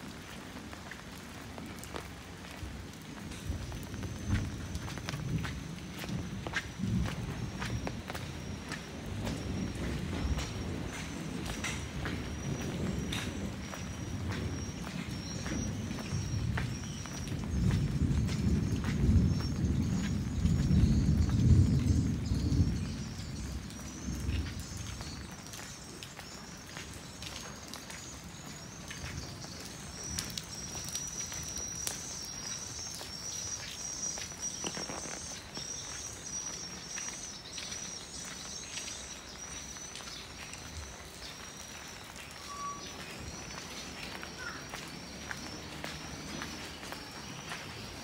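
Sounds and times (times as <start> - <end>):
footsteps on wet lane: 0.0 - 22.0, 23.9 - 48.0
birds chirping: 28.0 - 48.0.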